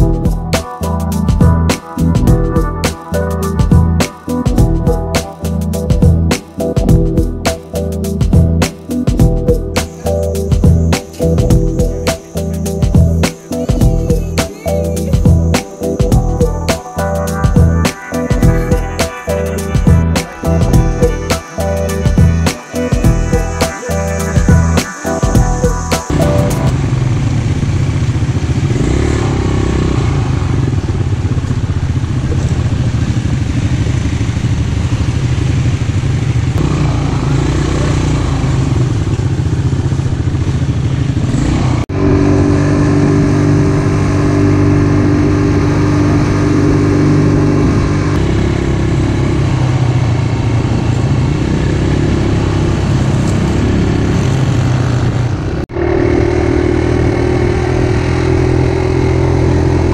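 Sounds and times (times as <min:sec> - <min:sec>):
quad bike engine under throttle: 0:26.2 - 0:59.9.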